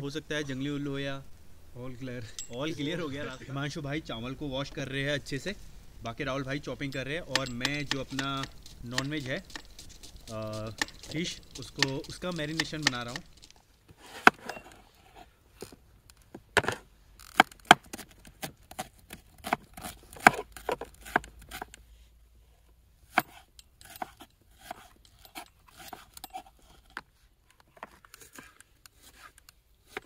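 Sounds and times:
knife chopping on wooden board: 10.3s - 13.2s, 17.4s - 21.7s.

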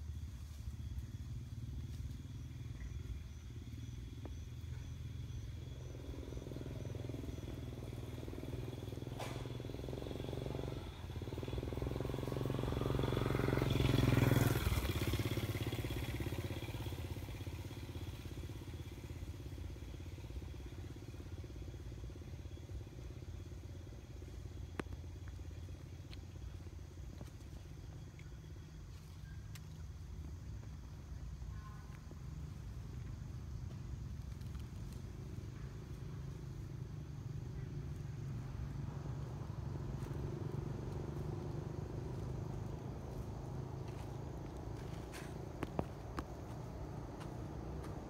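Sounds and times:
vehicle engine passing: 5.6s - 21.2s, 32.3s - 48.0s.

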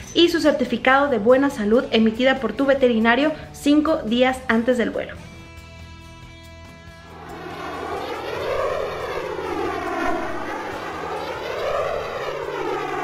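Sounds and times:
jet airliner flyby roar: 7.0s - 13.0s.

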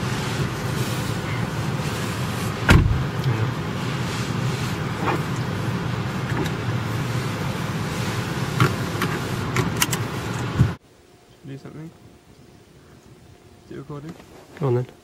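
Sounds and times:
car tyre and wind noise: 0.0s - 10.8s.

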